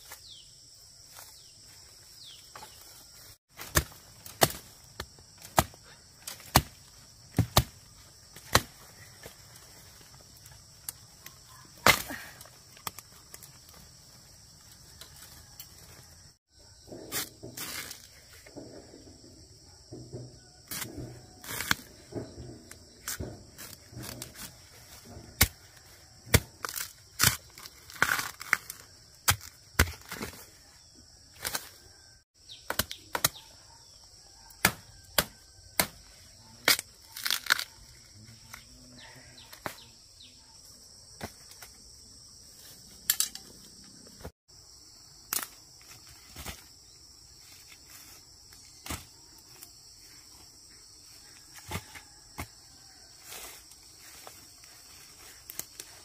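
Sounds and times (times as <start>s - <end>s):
insects buzzing: 0.0s - 56.0s
machete chopping bamboo: 3.6s - 8.9s, 11.8s - 13.0s, 20.7s - 21.9s, 25.3s - 30.4s, 32.6s - 33.5s, 34.5s - 37.8s, 51.6s - 52.5s
dry leaves rustling: 7.8s - 16.3s.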